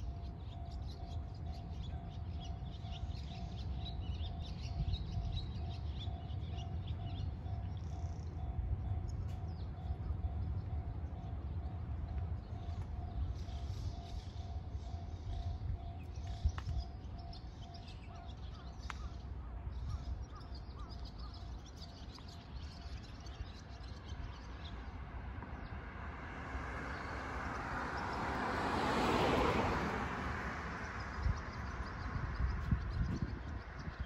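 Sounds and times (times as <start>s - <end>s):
small birds chirping: 0.3s - 25.0s
vehicle passing: 25.2s - 32.8s.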